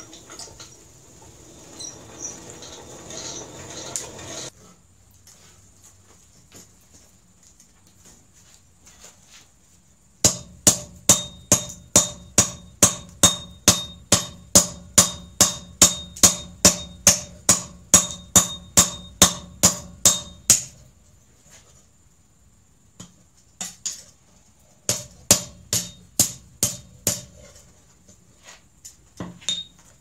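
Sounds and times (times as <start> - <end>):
hammer striking hot steel: 10.2 - 20.8, 24.9 - 27.4.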